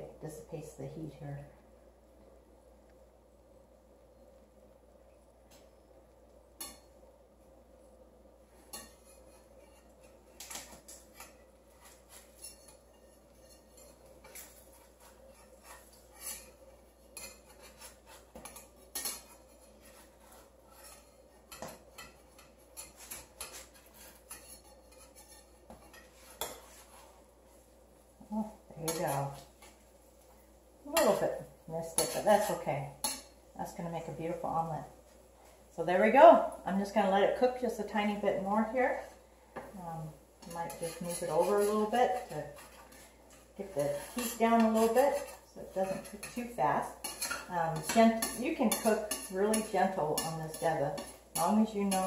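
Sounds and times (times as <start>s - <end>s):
metal spatula scraping frying pan: 8.6s - 27.3s, 28.8s - 29.7s, 30.9s - 33.4s, 40.4s - 52.0s.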